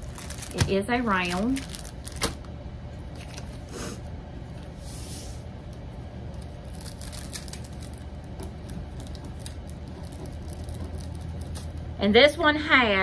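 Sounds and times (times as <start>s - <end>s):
canvas rustling: 0.0s - 2.4s
low steady hum: 0.0s - 13.0s
canvas sliding hiss: 4.8s - 5.5s.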